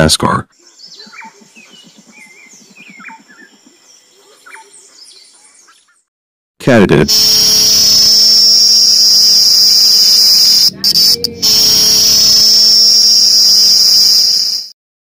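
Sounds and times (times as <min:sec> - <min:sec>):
insect shrill buzzing: 0:07.2 - 0:14.7.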